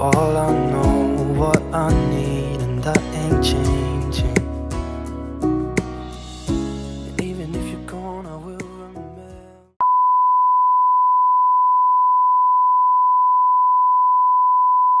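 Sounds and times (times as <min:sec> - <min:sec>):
sung pop ballad: 0:00.0 - 0:09.8.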